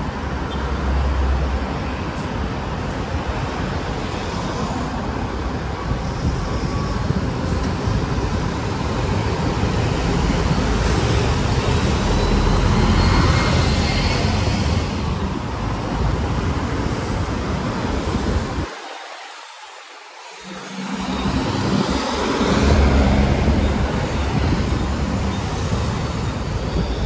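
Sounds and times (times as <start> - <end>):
buses and cars passing: 0.0 - 27.0
bus driving close by: 5.1 - 18.6, 20.4 - 27.0.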